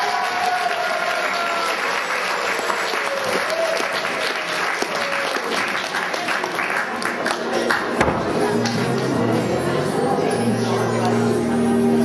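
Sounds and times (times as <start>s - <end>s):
audience clapping: 0.0s - 9.5s.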